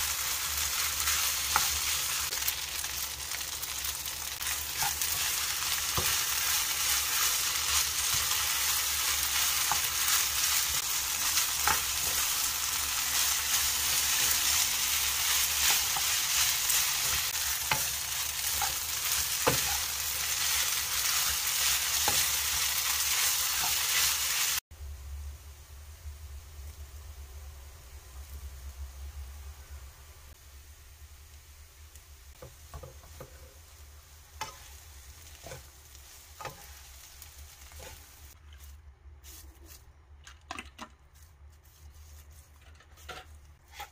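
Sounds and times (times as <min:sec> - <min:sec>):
rice sizzling in a frying pan: 0:00.0 - 0:24.7, 0:30.3 - 0:39.4.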